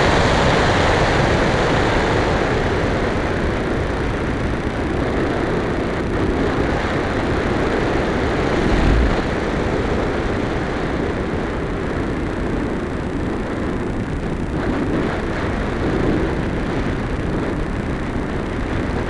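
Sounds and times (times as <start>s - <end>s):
air rushing over microphone: 7.8s - 10.5s.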